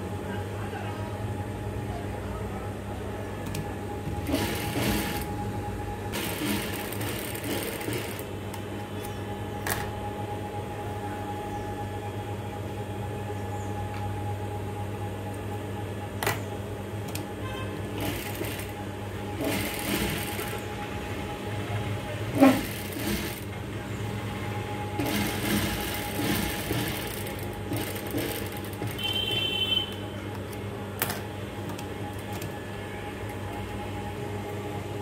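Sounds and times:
sewing machine motor hum: 3.5s - 8.3s, 17.5s - 20.9s, 22.3s - 23.6s, 24.9s - 29.7s.

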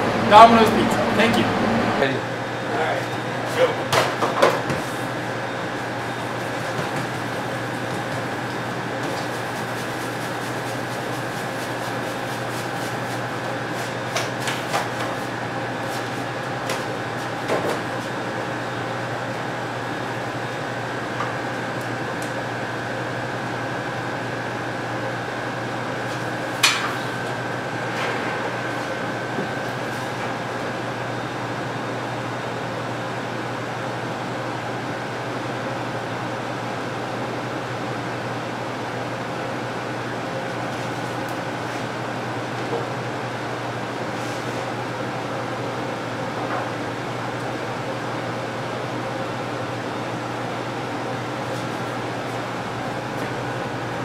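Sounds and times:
high whine: 0.0s - 2.9s
kitchen machinery hum: 0.0s - 54.0s.

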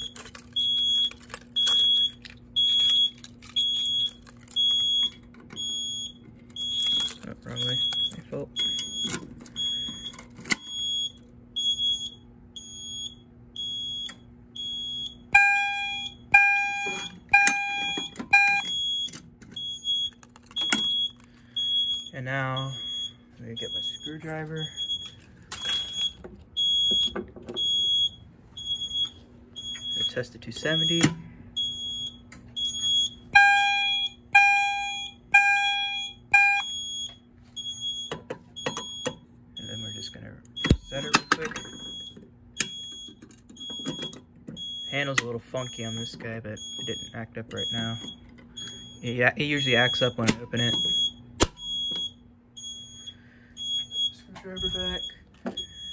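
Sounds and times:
high electronic alarm beeps: 0.0s - 55.9s
lower steady alarm tones: 0.0s - 55.9s
high-pitched buzzer beeps: 11.6s - 19.0s, 29.7s - 37.0s, 48.6s - 55.9s.

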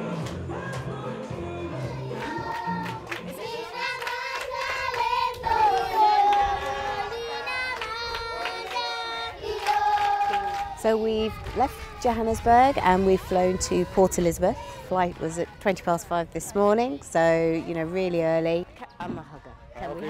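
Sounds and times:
background music: 0.0s - 3.7s
schoolchildren singing together: 0.0s - 15.3s.

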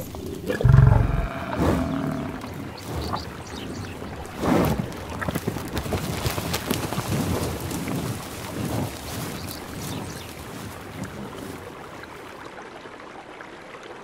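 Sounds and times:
buffalo bellowing: 0.0s - 2.6s
buffalo snorting: 0.0s - 11.6s
water sloshing: 0.0s - 12.4s.

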